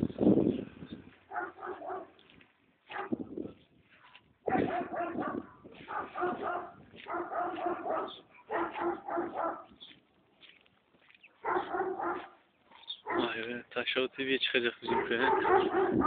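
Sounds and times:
dog barking rapidly: 1.3 - 2.2, 2.9 - 3.2, 4.4 - 9.7, 11.4 - 13.4, 14.8 - 16.0.

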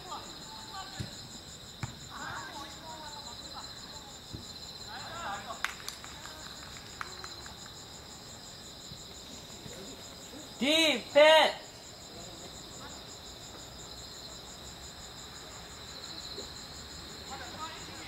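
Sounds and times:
crickets chirping: 0.0 - 18.0
person shouting: 10.6 - 11.6.

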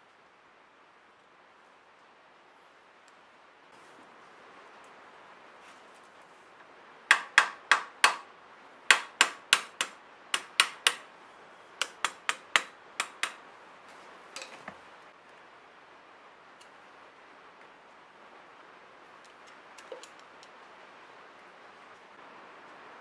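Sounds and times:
hand tool knocking on metal: 7.1 - 8.2, 8.9 - 11.0, 11.8 - 13.4.

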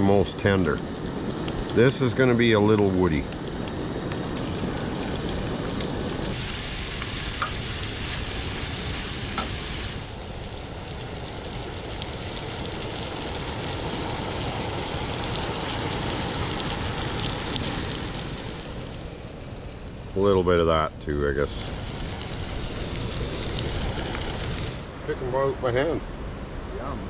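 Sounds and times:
mushrooms sizzling in frying pan: 0.0 - 24.9.

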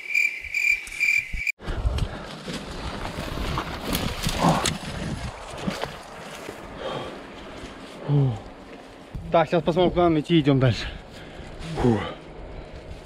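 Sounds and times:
cricket chirping: 0.0 - 1.5
wind rumble on microphone: 1.3 - 6.8
footsteps on forest floor: 1.8 - 9.3.

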